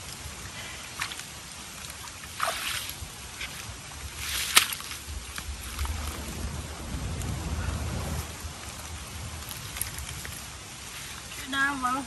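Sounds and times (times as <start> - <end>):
digging in wet mud: 0.6 - 6.0
crackling: 3.4 - 11.5
low rumble: 4.9 - 10.7.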